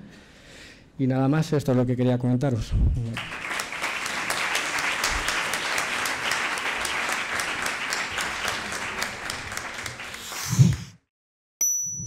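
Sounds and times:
audience applauding: 3.2 - 10.8.

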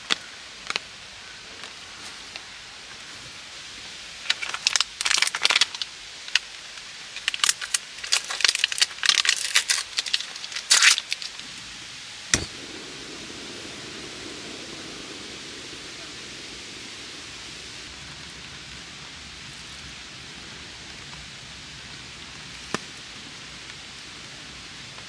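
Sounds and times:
rain hissing: 7.2 - 25.0.

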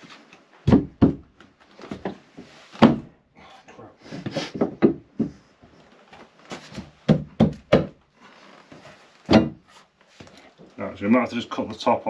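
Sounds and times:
dull wooden knocks and thumps: 0.6 - 3.2, 4.2 - 10.8.

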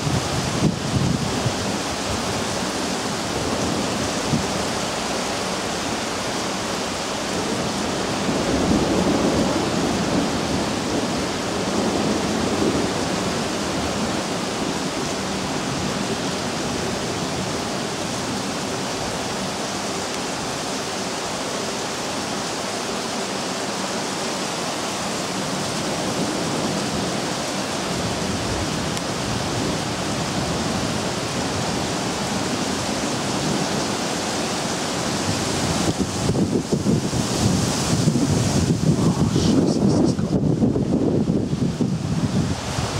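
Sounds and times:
heavy rain pouring: 0.0 - 42.9
thunder rumble: 7.2 - 19.5, 25.2 - 42.9.

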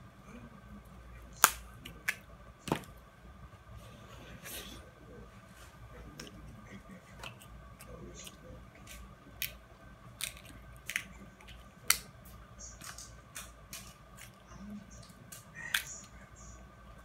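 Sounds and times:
crab shells cracking: 8.9 - 12.1.

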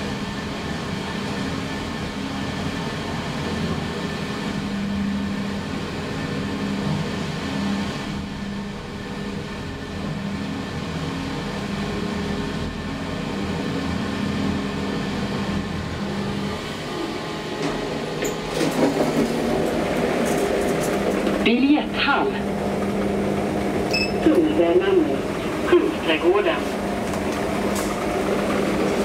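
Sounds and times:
elevator humming: 0.0 - 29.0
sliding doors clicking and knocking: 17.5 - 21.4, 27.0 - 29.0.

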